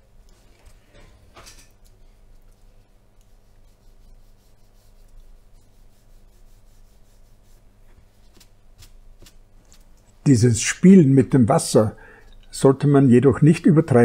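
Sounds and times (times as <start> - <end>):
low steady hum: 0.0 - 14.0
brush rubbing on paper: 2.2 - 9.9.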